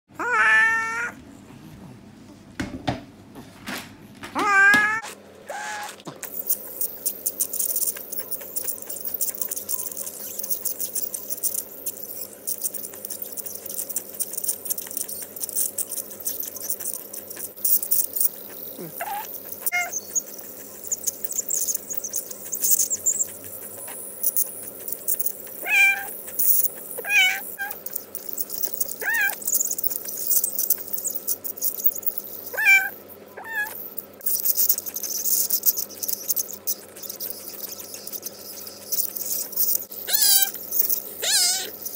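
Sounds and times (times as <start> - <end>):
cat meowing: 0.2 - 1.2, 4.4 - 6.0, 18.8 - 20.0, 25.5 - 26.1, 27.0 - 27.8, 29.0 - 29.4, 32.5 - 33.8, 40.1 - 40.6, 41.2 - 41.8
dental scaler hissing: 5.6 - 41.9.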